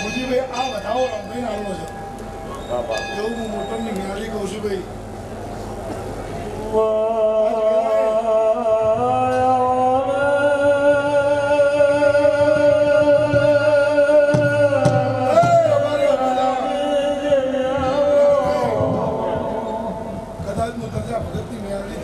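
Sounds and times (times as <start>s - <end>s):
man singing sustained notes: 6.6s - 20.4s.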